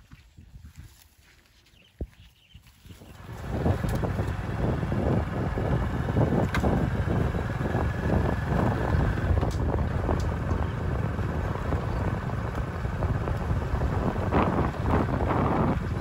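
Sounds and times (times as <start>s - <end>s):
wind buffeting the microphone: 0.0s - 1.0s, 1.9s - 16.0s.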